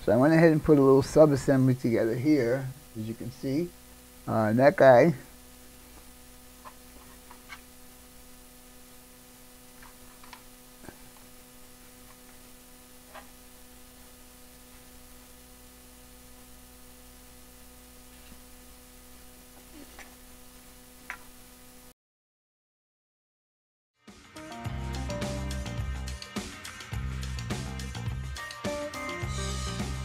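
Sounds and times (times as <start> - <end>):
electrical mains hum: 0.0 - 21.9.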